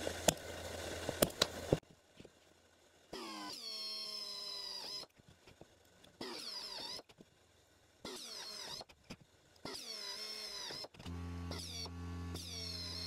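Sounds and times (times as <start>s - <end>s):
electric drill drilling metal: 6.2s - 7.0s, 8.0s - 8.9s, 9.6s - 13.0s.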